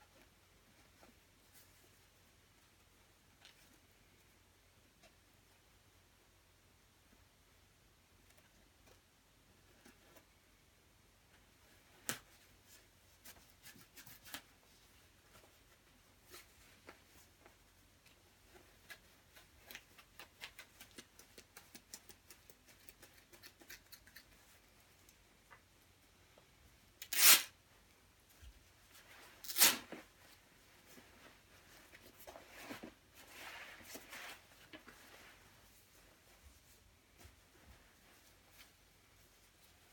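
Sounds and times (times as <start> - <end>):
faint clicks and rustles: 0.0 - 5.7, 11.3 - 26.6, 27.8 - 39.9
fabric ripping: 27.0 - 27.5, 29.4 - 30.0
fabric rustling and crinkling: 27.2 - 39.9.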